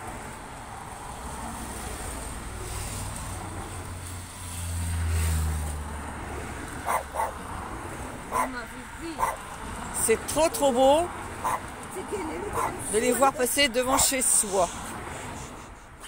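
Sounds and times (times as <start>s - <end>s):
motorcycle passing by: 0.8s - 10.0s, 10.8s - 14.1s
dog barking: 6.8s - 7.4s, 8.3s - 8.6s, 9.2s - 9.4s, 11.4s - 11.7s, 12.5s - 12.8s, 13.9s - 14.1s.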